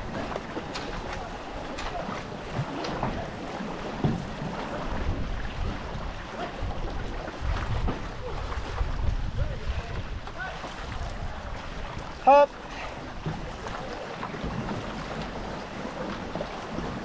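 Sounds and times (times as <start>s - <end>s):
canoe paddles splashing in water: 0.0s - 17.0s
wind on microphone: 2.3s - 12.2s.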